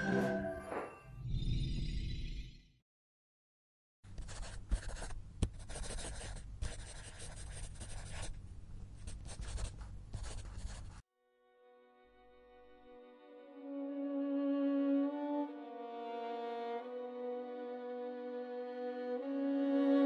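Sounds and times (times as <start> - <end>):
short music sting: 0.0 - 1.2
pen scratching on paper: 4.2 - 8.4, 9.0 - 11.0.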